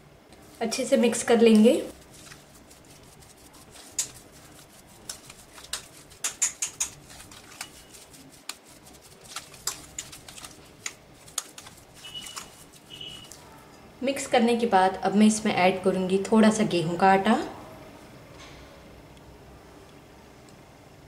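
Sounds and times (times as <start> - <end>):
hand squishing food mash: 0.4 - 13.5
fingers tapping glass bowl: 5.7 - 7.8.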